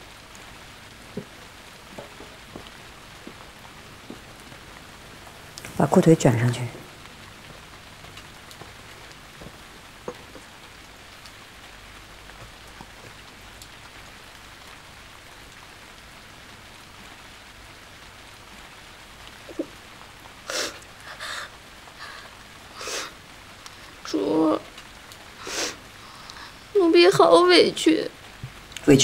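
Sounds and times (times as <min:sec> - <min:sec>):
steady rain: 0:00.0 - 0:29.0
short hissing sounds: 0:25.4 - 0:26.4.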